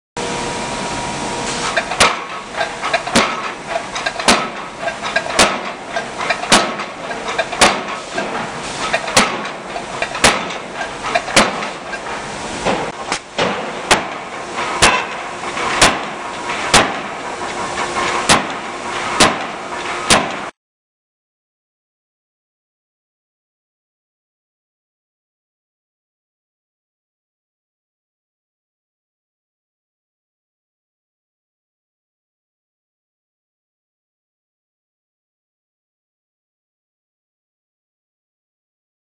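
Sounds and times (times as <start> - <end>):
shop noise hiss: 0.2 - 20.6
forging hammer striking steel: 1.7 - 20.5.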